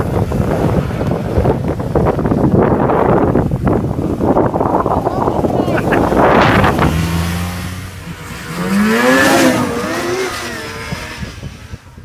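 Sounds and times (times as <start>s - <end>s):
loud rushing noise: 0.0s - 11.6s
snowmobile engine revving: 4.3s - 12.0s.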